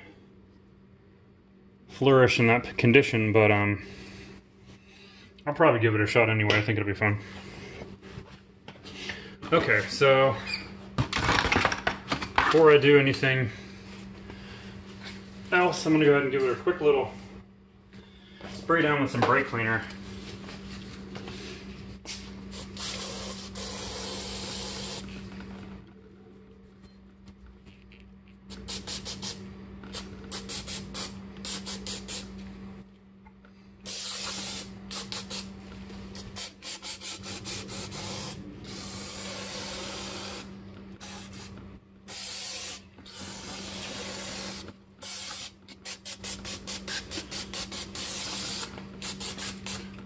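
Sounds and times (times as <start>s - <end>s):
aerosol can spraying: 22.5s - 25.1s, 28.5s - 32.3s, 33.9s - 35.5s, 36.2s - 41.5s, 42.1s - 49.9s.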